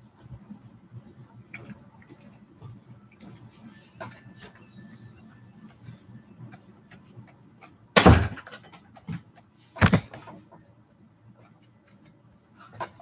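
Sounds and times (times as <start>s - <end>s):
loud thumps: 8.0s - 8.5s, 9.8s - 10.2s.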